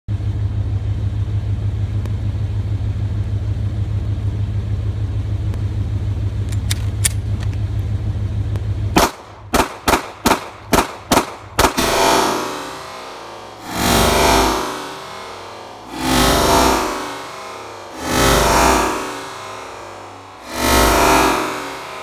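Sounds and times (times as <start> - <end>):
car engine idling: 0.1 - 22.0
pistol shots: 9.0 - 12.1.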